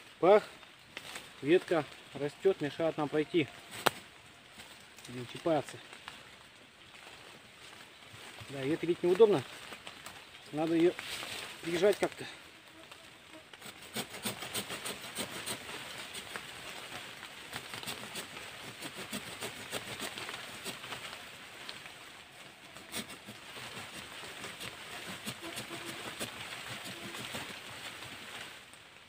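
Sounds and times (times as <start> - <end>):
leaves rustling: 0.0 - 29.0
saw rasping through branch: 13.5 - 21.2, 22.6 - 28.4.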